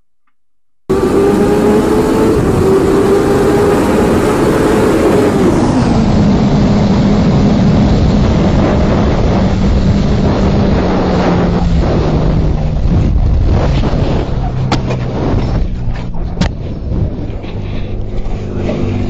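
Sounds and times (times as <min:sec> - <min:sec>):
motorcycle engine drone: 0:00.8 - 0:19.0
wind rushing: 0:00.9 - 0:19.0
motorcycle crashing and scraping: 0:11.2 - 0:19.0.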